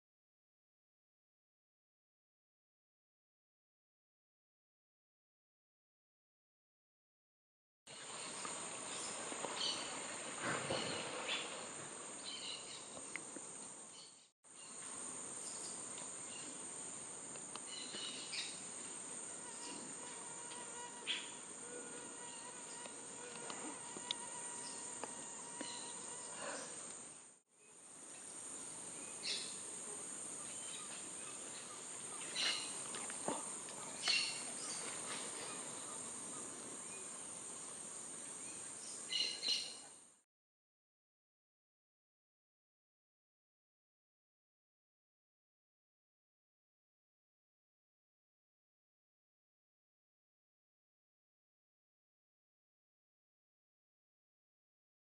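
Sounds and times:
insects droning: 7.9s - 40.2s.

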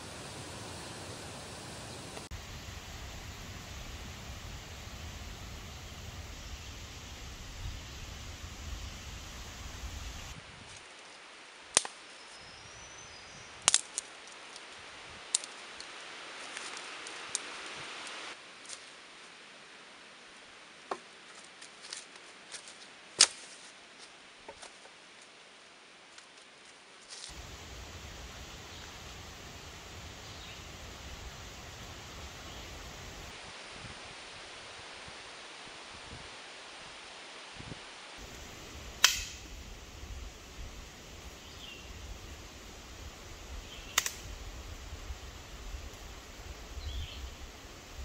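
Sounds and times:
footsteps in leaf litter: 16.2s - 17.9s, 21.3s - 24.8s
stick cracking: 39.0s - 39.5s, 44.0s - 44.2s.

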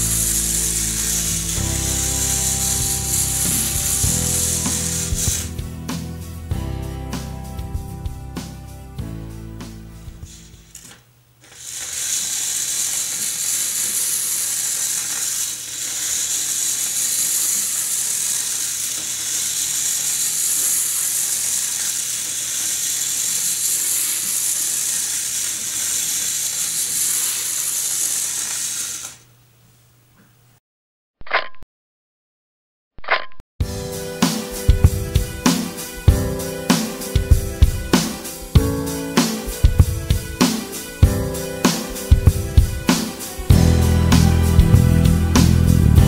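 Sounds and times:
magnets rattling along wire coil: 0.0s - 5.6s, 10.3s - 29.2s.

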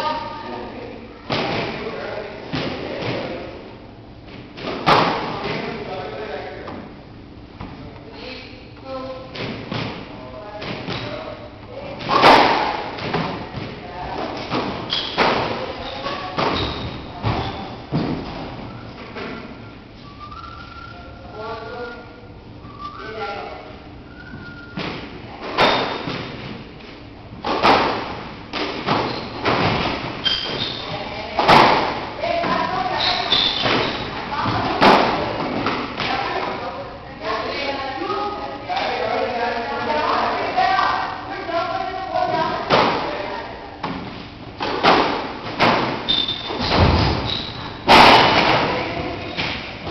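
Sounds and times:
squash ball hitting rackets and walls: 1.3s - 3.6s, 4.2s - 6.0s, 9.3s - 19.5s, 24.8s - 36.7s, 42.2s - 49.9s
short high squeaks: 30.2s - 30.9s, 33.0s - 34.1s, 46.1s - 47.8s.

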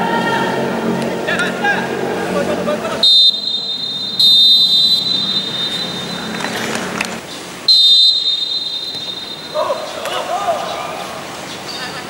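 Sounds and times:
referee's whistle blasts: 3.0s - 6.5s, 7.7s - 9.9s.

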